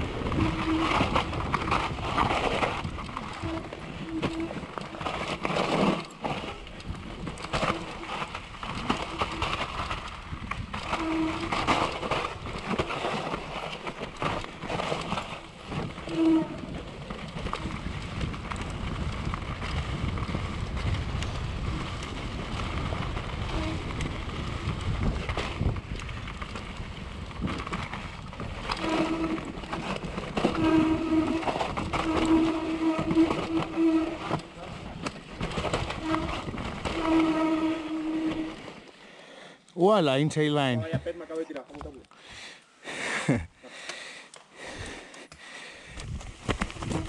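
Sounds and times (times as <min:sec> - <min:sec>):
wind on microphone: 0:00.0 - 0:04.7, 0:15.6 - 0:38.6, 0:45.9 - 0:47.0
bike chain and frame rattling: 0:00.0 - 0:38.9
bike tyres rumbling over dirt: 0:00.0 - 0:39.1, 0:45.8 - 0:47.0.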